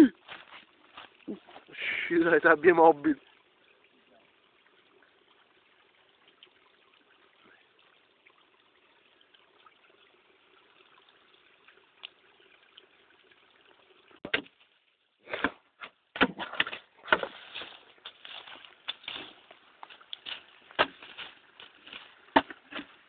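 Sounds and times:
faint steady hiss: 0.0s - 15.8s
dry leaves and brush rustling: 0.2s - 1.7s, 17.1s - 23.0s.

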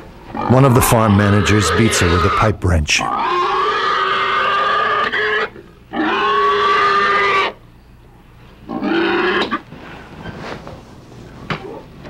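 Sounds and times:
pig squealing: 0.3s - 7.6s, 8.6s - 9.7s.

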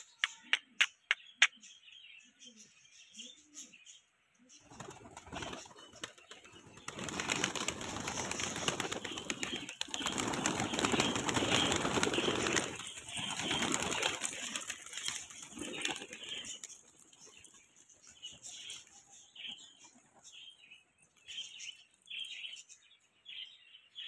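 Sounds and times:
pigeons clattering wingbeats: 4.7s - 17.4s.

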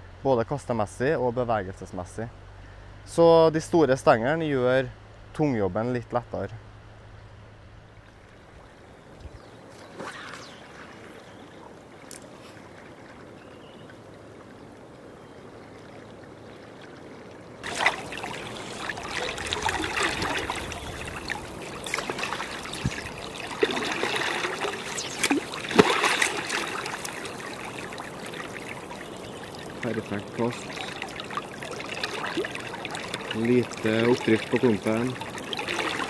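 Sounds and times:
fly line swishing and splashing: 9.6s - 13.3s, 17.6s - 36.0s
river current rushing: 16.3s - 36.0s
water splashing around legs: 17.6s - 36.0s.

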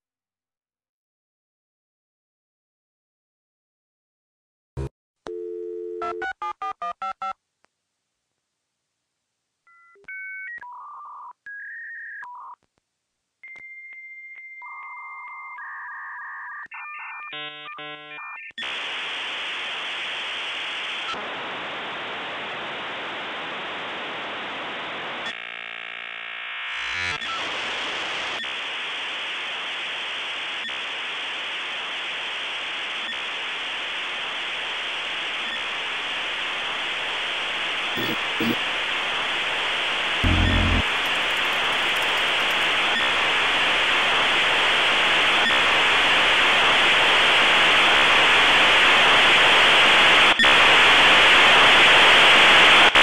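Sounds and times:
dial-up modem tones: 5.3s - 7.4s, 38.0s - 38.6s, 40.2s - 43.1s
modem data hiss: 26.9s - 53.0s
dialing beeps: 38.0s - 38.6s, 40.2s - 42.7s.

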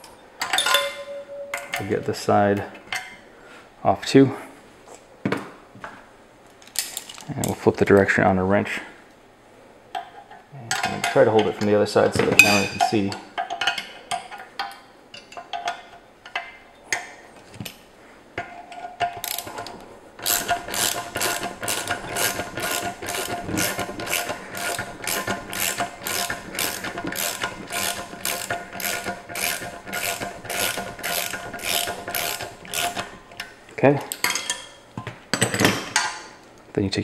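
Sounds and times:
metal clinks and taps: 0.4s - 2.0s
ratchet wrench clicking: 20.2s - 33.1s.

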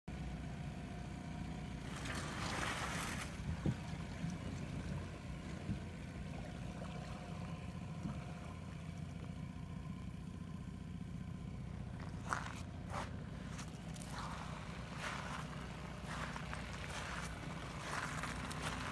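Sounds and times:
steady low rumble: 1.4s - 18.9s
water sloshing and splashing: 1.8s - 9.2s, 11.8s - 18.9s.

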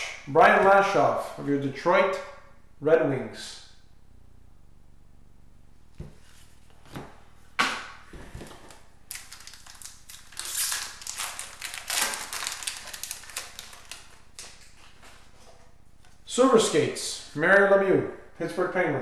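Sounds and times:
wrapper crinkling: 8.5s - 15.2s.

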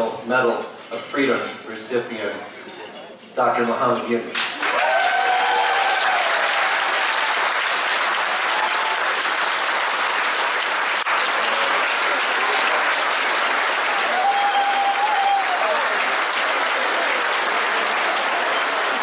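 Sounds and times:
audience applause: 4.6s - 19.0s
audience cheering: 4.6s - 19.0s.

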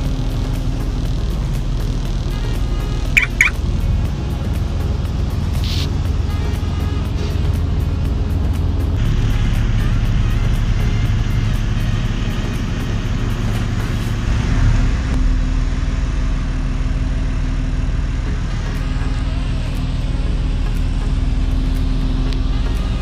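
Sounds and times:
ferry engines droning: 0.0s - 23.0s
rushing water hiss: 4.7s - 6.3s.

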